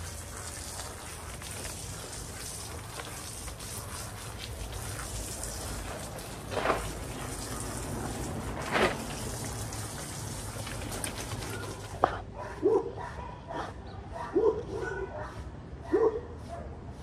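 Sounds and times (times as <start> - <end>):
water spraying from hose: 0.0 - 12.1
dog barking: 11.4 - 16.8.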